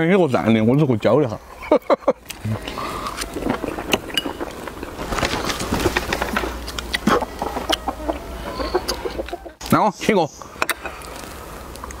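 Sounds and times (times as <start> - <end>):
chewing: 2.2 - 5.6, 6.2 - 9.5.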